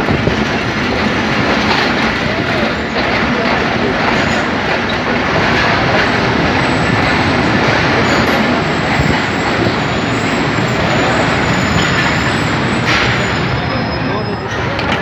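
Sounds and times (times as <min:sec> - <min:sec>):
train wheels on rails: 0:00.0 - 0:15.0
faint high squeal: 0:13.1 - 0:14.7.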